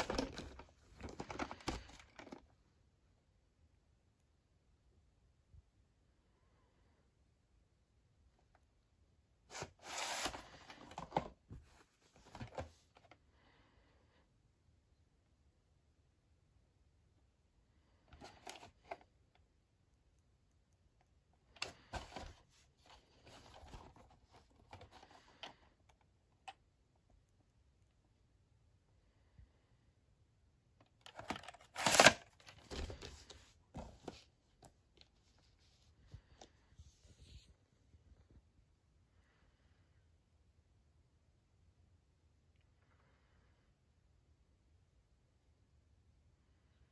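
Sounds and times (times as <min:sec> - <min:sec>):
plastic scraping against cardboard: 0:09.5 - 0:11.3.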